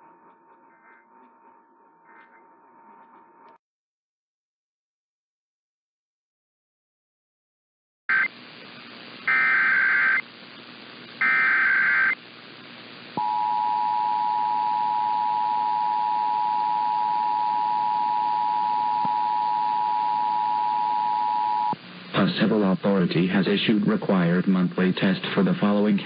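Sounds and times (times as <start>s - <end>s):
radio hiss: 8.1s - 26.0s
data bursts: 9.3s - 10.2s, 11.2s - 12.2s.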